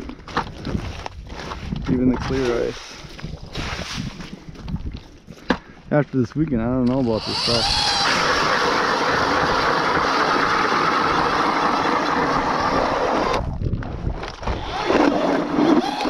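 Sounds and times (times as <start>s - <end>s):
electric ice auger drilling: 6.8s - 13.5s, 14.2s - 16.0s.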